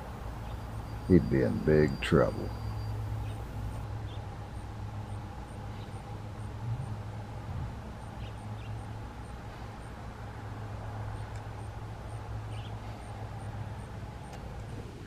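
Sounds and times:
faint high chirps: 0:00.0 - 0:04.2
low background hum: 0:00.0 - 0:15.0.

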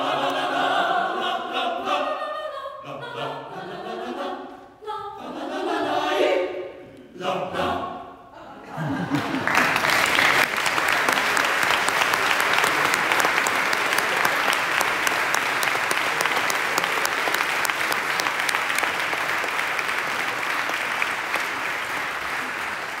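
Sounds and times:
audience applauding: 0:09.0 - 0:23.0.

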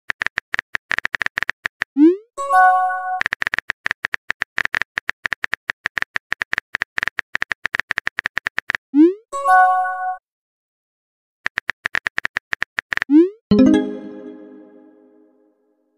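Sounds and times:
message chime: 0:13.5 - 0:15.3.

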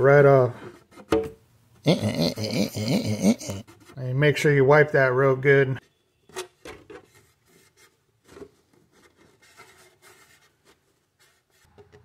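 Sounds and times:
cloth wiping plastic: 0:07.2 - 0:11.8.

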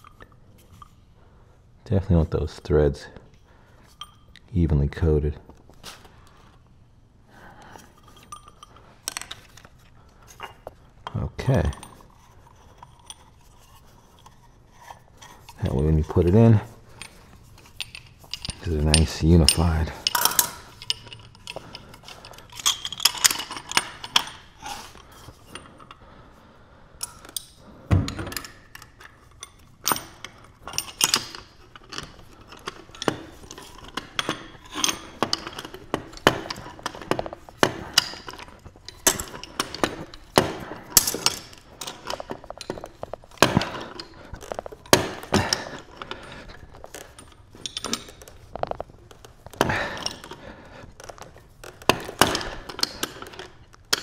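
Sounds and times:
metal pipe fittings clinking: 0:00.0 - 0:01.0, 0:03.3 - 0:04.4, 0:07.6 - 0:26.1, 0:27.0 - 0:54.0
heavy thunk of parts set down: 0:27.9 - 0:28.4, 0:39.0 - 0:41.4.

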